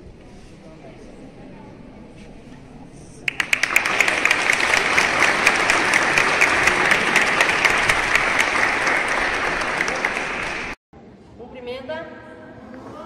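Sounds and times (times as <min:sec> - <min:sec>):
group of people applauding: 0:03.3 - 0:10.8.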